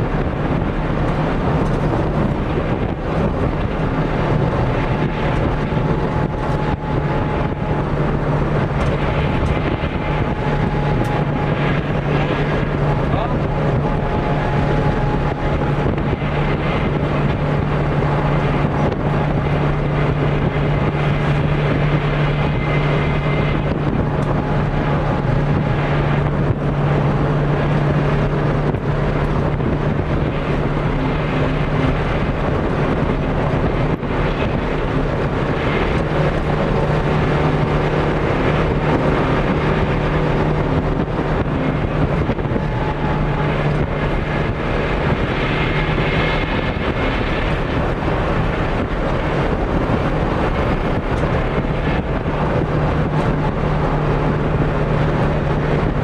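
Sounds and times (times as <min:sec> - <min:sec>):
rally car engine running hard: 0:00.0 - 0:56.0
road and wind noise: 0:00.0 - 0:56.0.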